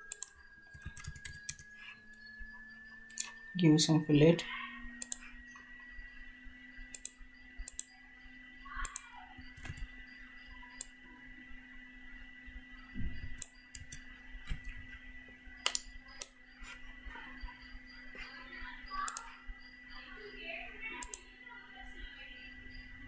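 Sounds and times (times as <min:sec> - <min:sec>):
computer mouse clicks: 0:00.0 - 0:01.7, 0:05.0 - 0:05.3, 0:06.9 - 0:07.9, 0:08.8 - 0:09.9, 0:10.7 - 0:11.0, 0:13.3 - 0:14.8, 0:15.6 - 0:16.4, 0:19.0 - 0:19.4, 0:21.0 - 0:21.3
faint steady hum: 0:00.0 - 0:23.0
thin high whine: 0:00.0 - 0:23.0.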